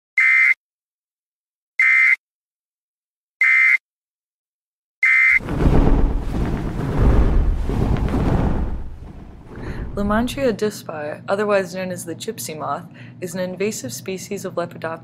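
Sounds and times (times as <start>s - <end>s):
deep rumbling noise: 5.4s - 10.6s.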